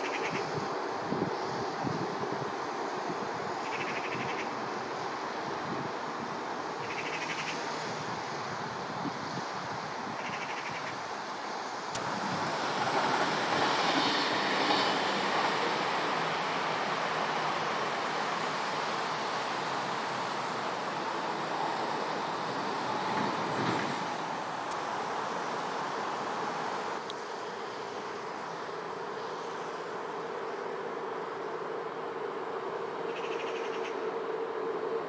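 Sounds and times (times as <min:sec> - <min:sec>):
wind on microphone: 0:00.0 - 0:11.0
outdoor rumble and hiss: 0:00.0 - 0:35.0.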